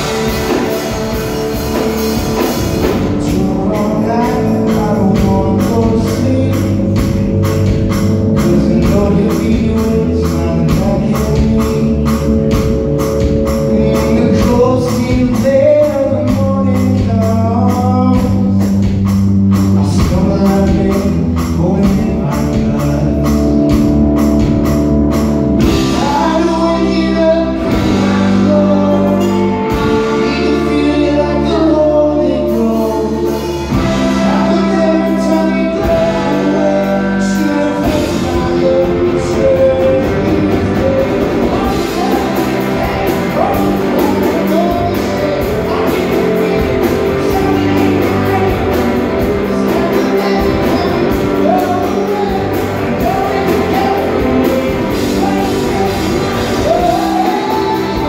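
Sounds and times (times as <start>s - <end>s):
live rock band playing: 0.0s - 58.0s
person singing: 0.0s - 58.0s.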